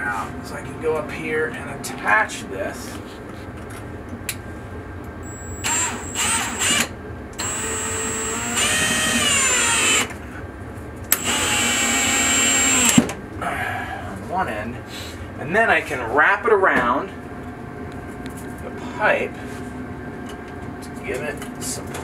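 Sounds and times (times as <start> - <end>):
cordless drill motor whine: 5.2 - 10.1, 11.2 - 13.1.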